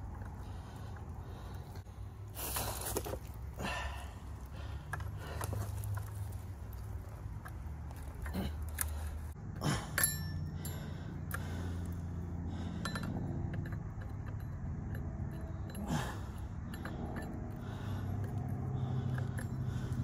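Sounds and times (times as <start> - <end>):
low steady hum: 0.0 - 20.0
metal chain clicks and clinks: 12.8 - 20.0.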